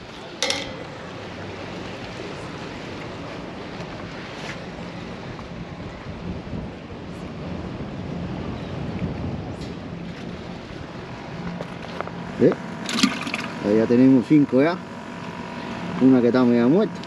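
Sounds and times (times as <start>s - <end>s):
wind buffeting microphone: 5.1s - 12.4s.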